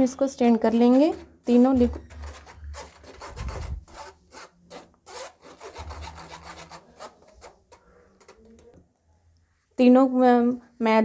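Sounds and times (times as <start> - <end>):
flour rubbed through wire sieve: 0.5 - 8.0.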